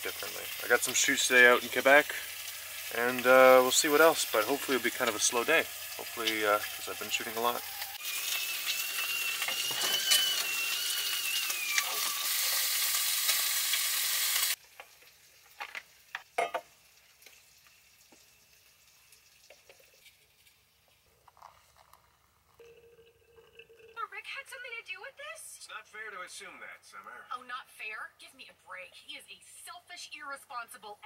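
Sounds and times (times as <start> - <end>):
food sizzling in a frying pan: 0.0 - 21.0
kettle whistling: 0.1 - 14.6.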